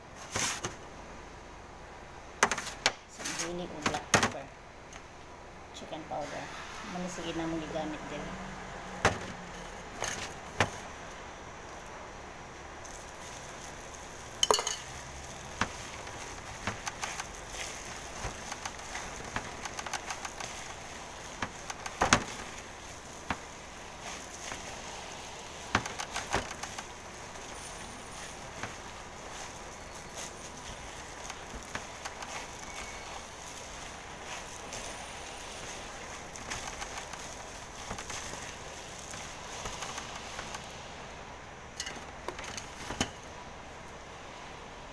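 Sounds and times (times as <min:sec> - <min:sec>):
steady hiss: 0:00.0 - 0:44.9
metal bowl clinking on table: 0:14.4 - 0:15.0.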